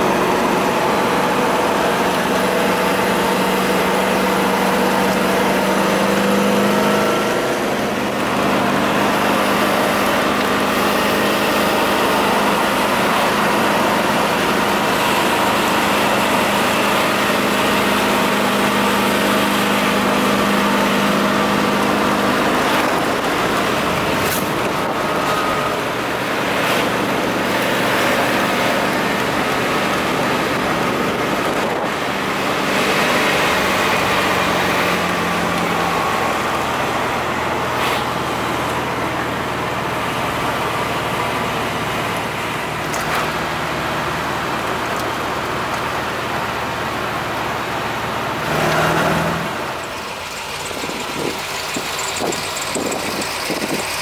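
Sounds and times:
car engine droning: 0.0 - 54.0
road and wind noise: 0.0 - 54.0.

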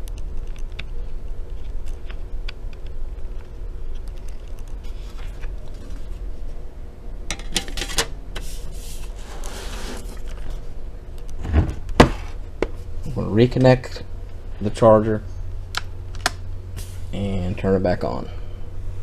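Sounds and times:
low steady hum: 0.0 - 19.0
scraping rustle of laptop case: 8.4 - 10.6.

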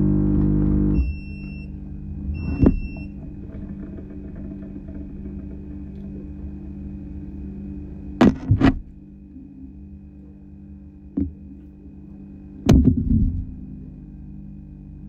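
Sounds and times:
steady low hum: 0.0 - 15.0
short rattling: 1.1 - 9.1
sharp knocks and thumps: 1.8 - 6.6, 8.2 - 9.0, 11.2 - 11.6, 12.7 - 13.7.

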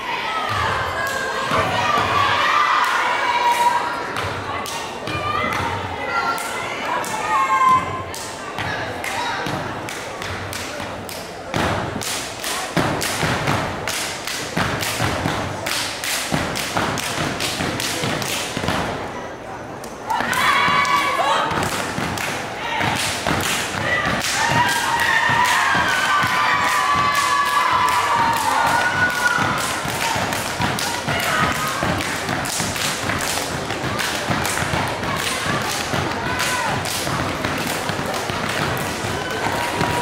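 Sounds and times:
rhythmic stomps: 12.8 - 18.9, 21.5 - 40.0
hand claps: 21.6 - 40.0.

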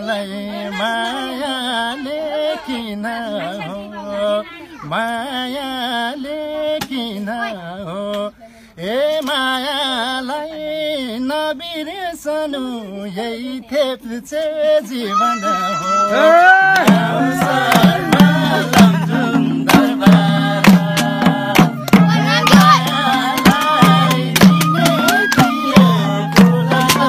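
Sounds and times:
music: 16.8 - 27.0.

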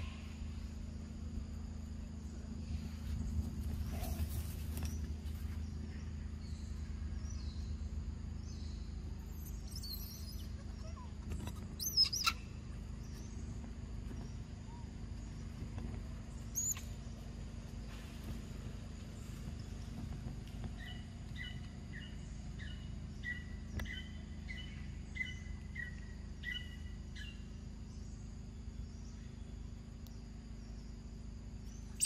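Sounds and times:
steady low hum: 0.0 - 32.0
squeaky animal calls: 9.6 - 12.5.

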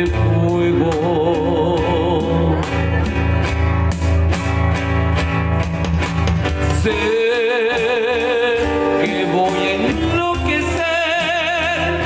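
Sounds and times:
man singing: 0.0 - 3.4, 6.6 - 12.0
acoustic guitars strumming: 0.0 - 12.0
low bass line: 0.0 - 12.0.

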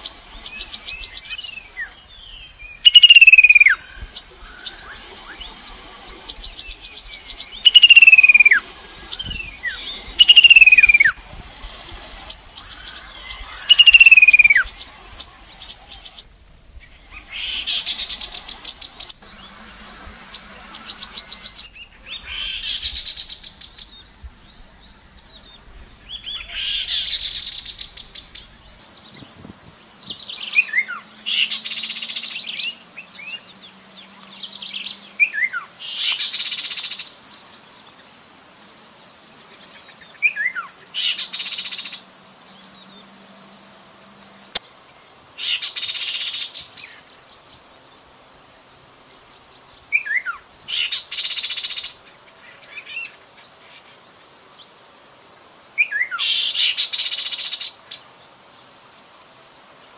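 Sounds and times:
bird singing whistled notes and trill: 0.3 - 11.3, 12.4 - 16.2.

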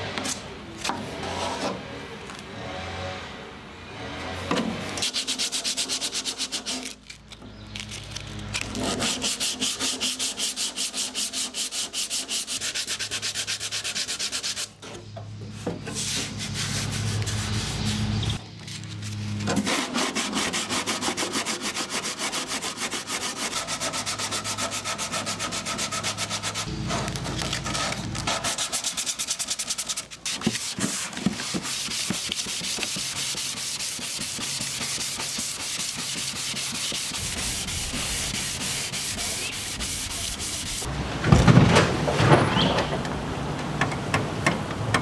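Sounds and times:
sanding block scraping panel: 5.0 - 7.0, 8.6 - 14.8, 15.5 - 40.9.

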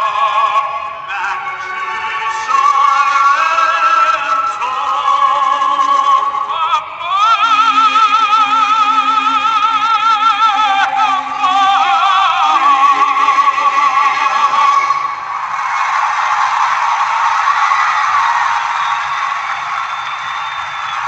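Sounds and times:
slow melody with vibrato: 7.4 - 15.4.

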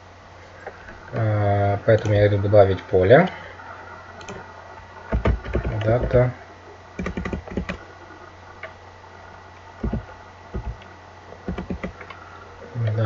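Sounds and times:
steady low hum: 0.0 - 13.0
computer keyboard keystrokes: 7.0 - 7.8, 9.8 - 10.9, 11.5 - 12.1.

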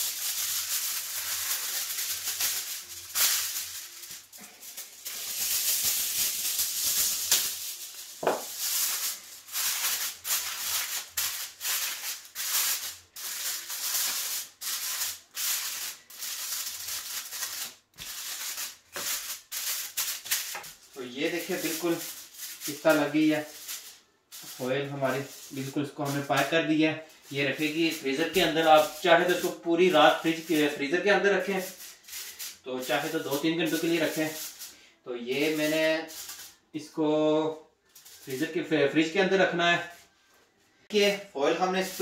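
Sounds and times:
aluminium foil crinkling: 0.0 - 36.6, 37.9 - 38.7, 41.7 - 42.0.

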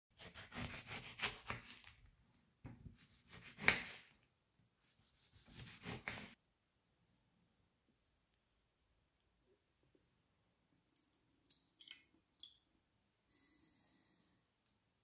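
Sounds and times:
knife cutting orange: 0.2 - 1.9, 2.8 - 4.2, 5.2 - 6.4.

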